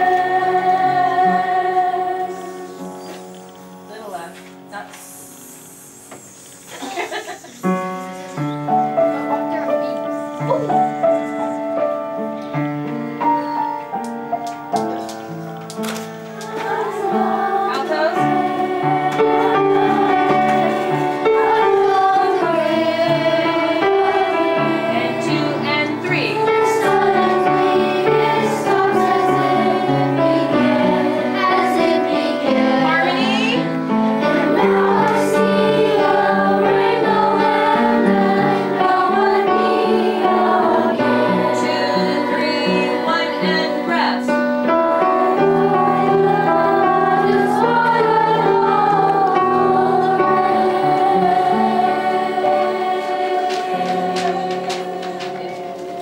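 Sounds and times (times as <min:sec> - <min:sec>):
children's choir singing: 0:00.0 - 0:56.0
piano accompaniment: 0:00.0 - 0:56.0.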